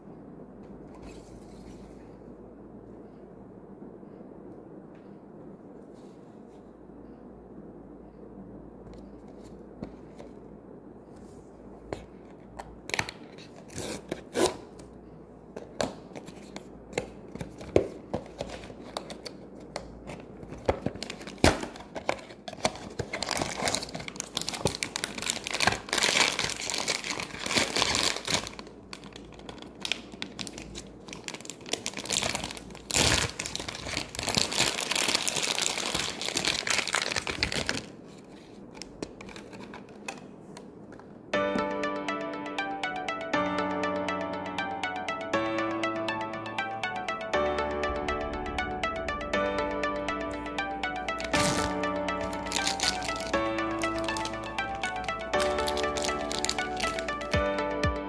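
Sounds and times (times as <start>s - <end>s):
plastic crinkling: 20.8s - 40.2s.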